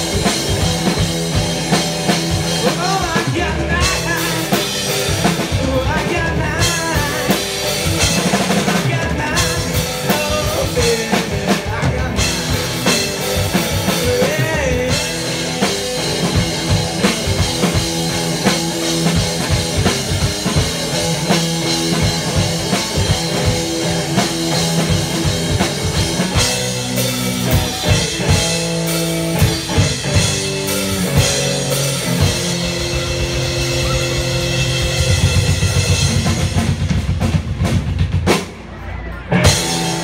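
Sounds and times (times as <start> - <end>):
drum kit beat: 0.0 - 40.0
electric guitar notes: 11.8 - 36.6.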